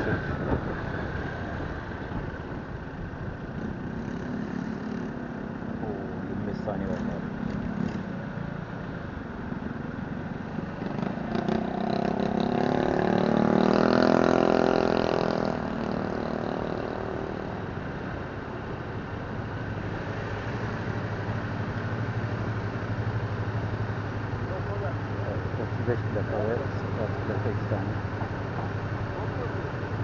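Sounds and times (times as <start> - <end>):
passing motorcycle engine: 0.0 - 18.6
surrounding traffic: 0.0 - 30.0.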